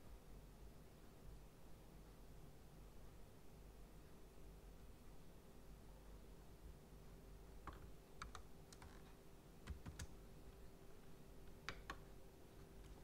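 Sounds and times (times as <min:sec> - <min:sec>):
faint steady hum: 0:00.0 - 0:13.0
keyboard and mouse clicks: 0:07.6 - 0:10.2, 0:11.5 - 0:12.1.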